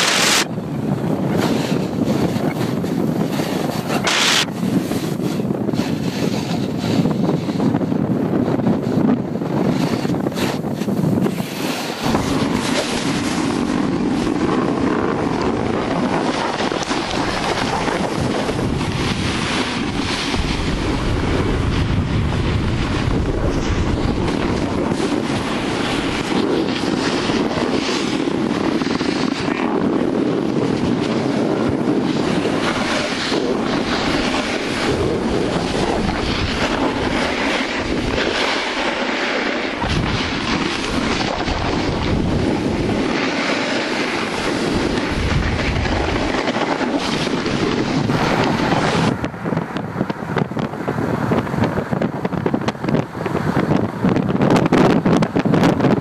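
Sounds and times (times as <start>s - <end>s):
snowboard scraping over snow: 0.0s - 56.0s
wind buffeting microphone: 0.0s - 56.0s.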